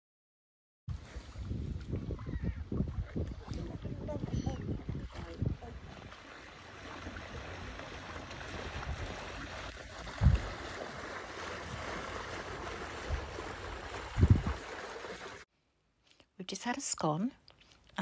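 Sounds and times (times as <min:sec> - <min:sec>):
wind buffeting thumps: 0:00.9 - 0:06.2, 0:07.0 - 0:14.8
wind on microphone: 0:00.9 - 0:06.3, 0:07.0 - 0:14.8.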